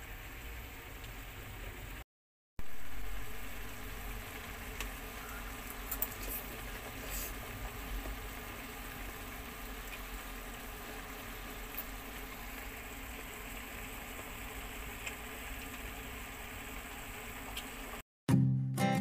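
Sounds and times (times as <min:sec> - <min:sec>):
hiss: 0:06.2 - 0:07.6.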